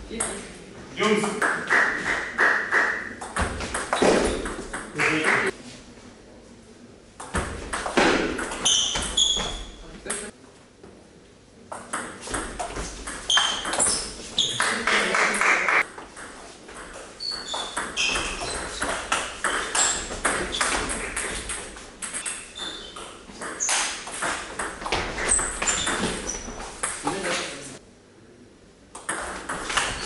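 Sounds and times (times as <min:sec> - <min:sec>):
shoes squeaking on floor: 0:01.9 - 0:04.7, 0:08.0 - 0:10.0, 0:12.2 - 0:15.0, 0:15.9 - 0:27.4, 0:29.6 - 0:30.0.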